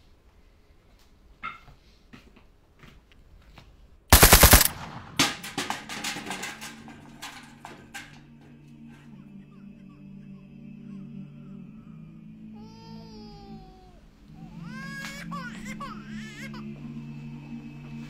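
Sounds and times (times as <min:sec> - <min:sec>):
automatic rifle fire: 0:04.1 - 0:06.4
faint cracks and rattles: 0:04.2 - 0:08.6.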